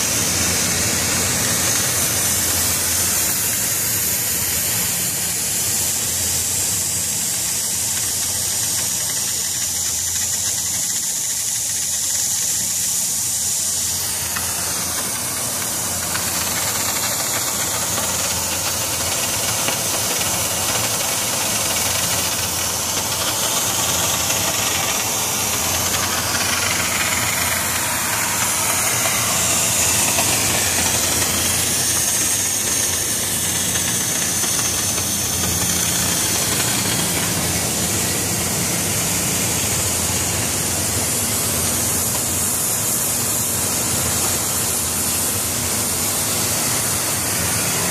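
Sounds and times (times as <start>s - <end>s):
cutting torch hissing: 0.0s - 47.9s
steady low hum: 12.6s - 47.9s.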